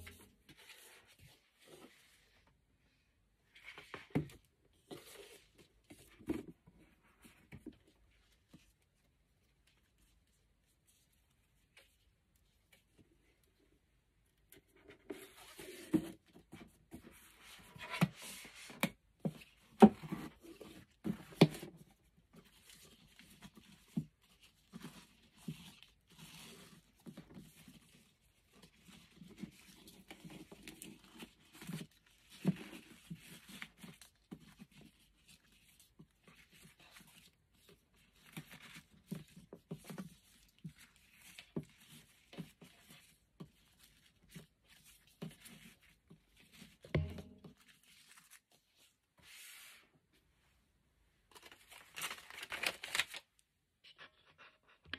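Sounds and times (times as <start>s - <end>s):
ribbon rustling and sliding: 47.4s - 49.9s.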